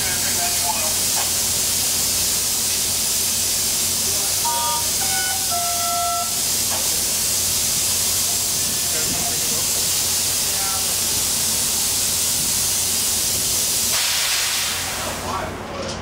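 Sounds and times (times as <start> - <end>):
train air hiss: 0.0 - 15.5
stepped clear tones: 4.4 - 6.4.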